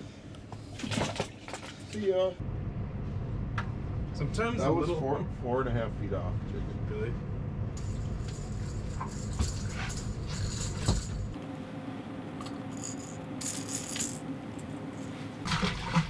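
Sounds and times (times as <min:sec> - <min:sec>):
fishing lure rattling: 0:12.7 - 0:14.2.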